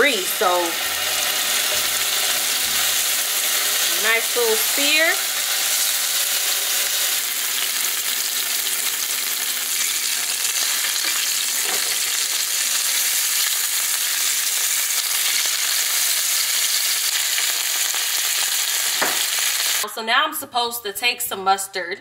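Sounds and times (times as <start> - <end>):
meat sizzling in oil: 0.0 - 19.8.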